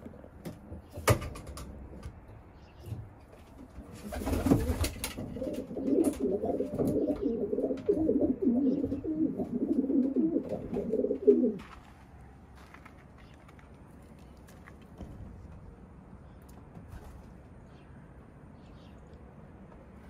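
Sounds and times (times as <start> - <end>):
pigeons cooing: 3.8 - 11.6.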